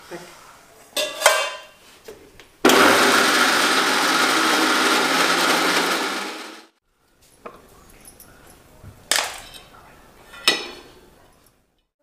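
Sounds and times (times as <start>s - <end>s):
mixer grinder whirring: 2.6s - 6.8s.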